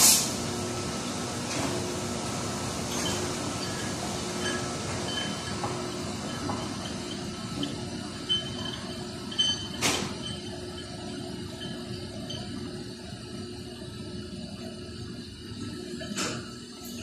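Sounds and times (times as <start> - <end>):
machinery humming: 0.3 - 17.0
metallic squeaks and clinks: 2.9 - 12.8.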